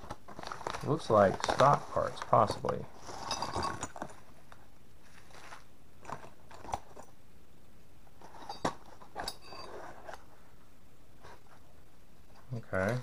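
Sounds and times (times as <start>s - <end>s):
paper bag crinkling: 0.0s - 4.1s.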